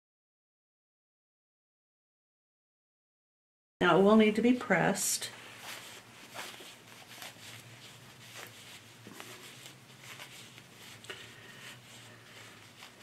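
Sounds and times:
fabric rustling in hands: 0:04.4 - 0:13.0.

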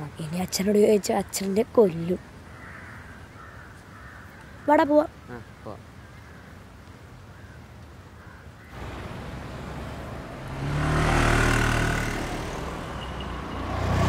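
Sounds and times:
low traffic hum: 0:00.0 - 0:14.0
street noise: 0:00.0 - 0:14.0
motorcycle passing: 0:08.7 - 0:14.0.

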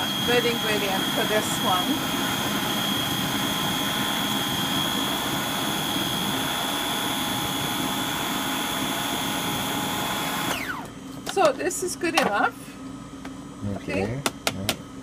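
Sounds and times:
food processor motor whining: 0:00.0 - 0:11.5.

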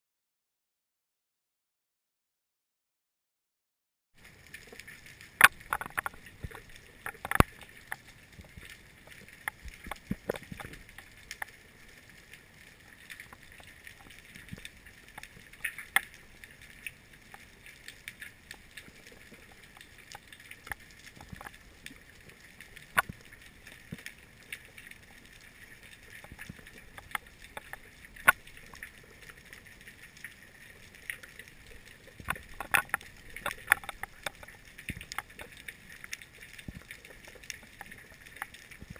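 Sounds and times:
sharp clicks and knocks: 0:05.4 - 0:08.6, 0:32.2 - 0:35.6.

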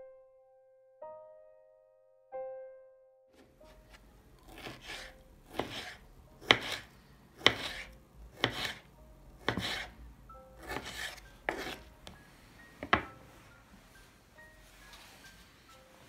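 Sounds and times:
knife cutting on wooden board: 0:04.4 - 0:10.0, 0:10.6 - 0:11.9.

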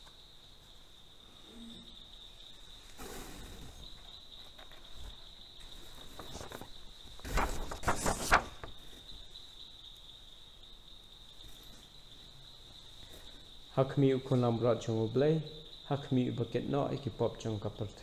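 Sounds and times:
crickets trilling: 0:00.0 - 0:18.0
rustles and knocks of handling: 0:04.0 - 0:09.1.

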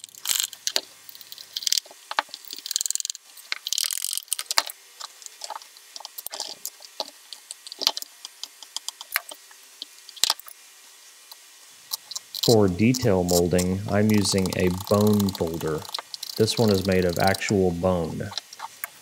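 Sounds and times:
burnisher rubbing leather: 0:12.3 - 0:18.8.

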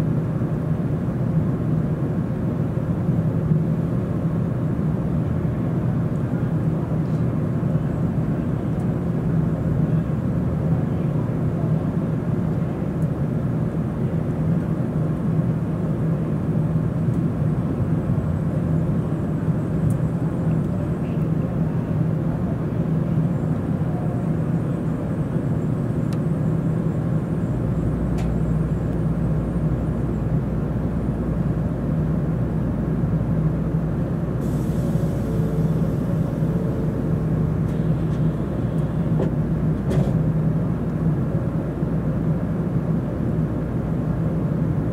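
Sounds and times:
deep train rumble: 0:00.0 - 0:44.9
train interior low hum: 0:00.0 - 0:44.9
brief hiss: 0:34.4 - 0:37.1.

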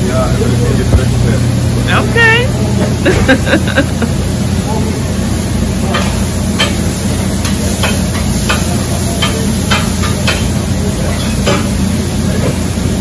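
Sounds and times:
exhaust fan humming: 0:00.0 - 0:13.0
meat sizzling: 0:05.1 - 0:12.9.

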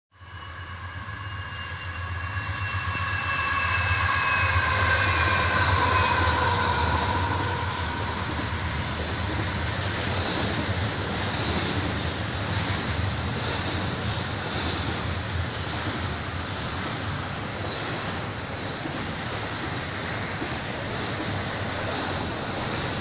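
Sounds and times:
high ringing tone: 0:00.2 - 0:09.0
freight train rumbling on rails: 0:00.2 - 0:23.0.

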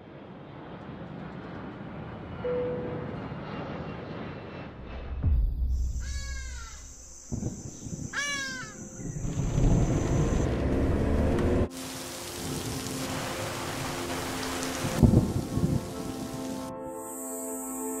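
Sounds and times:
falling bird calls: 0:05.8 - 0:10.4
steady hiss of rain: 0:09.3 - 0:17.8.

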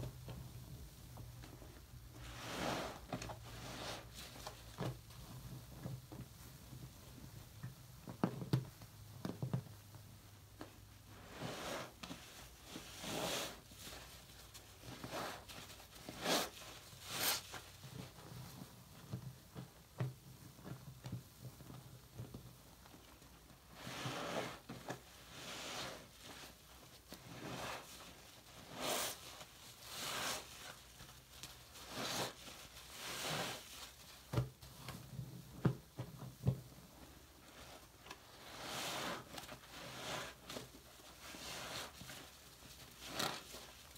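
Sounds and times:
sponge squelching with bubbles: 0:23.8 - 0:35.6, 0:36.9 - 0:43.9.

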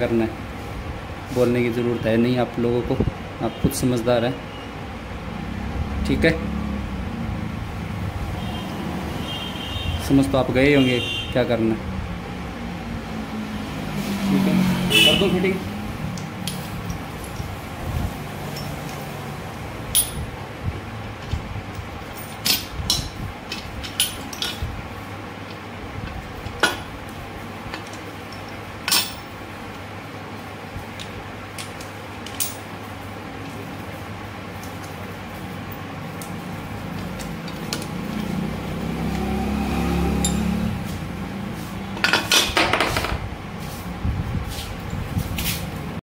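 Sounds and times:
metal gears clinking: 0:16.4 - 0:17.6, 0:18.4 - 0:19.2, 0:19.9 - 0:20.4, 0:21.2 - 0:24.7, 0:27.7 - 0:29.4, 0:40.2 - 0:40.5.

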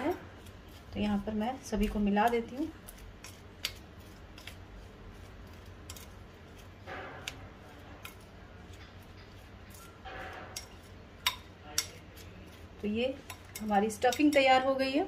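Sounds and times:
spoon scraping bowl: 0:00.0 - 0:15.0
spoon clicking against bowl: 0:10.6 - 0:12.0, 0:13.2 - 0:14.6.

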